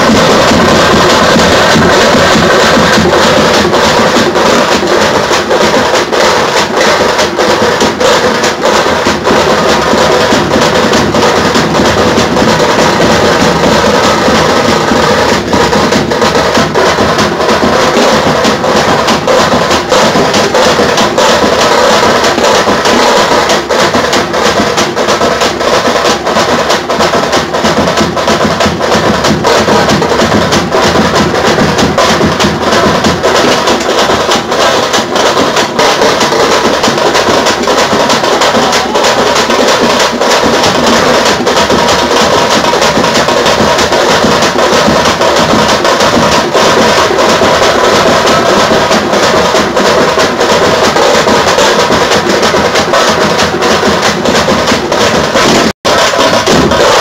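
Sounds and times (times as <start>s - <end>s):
bass drums: 0.0s - 57.0s
frame drums struck rapidly: 0.0s - 57.0s.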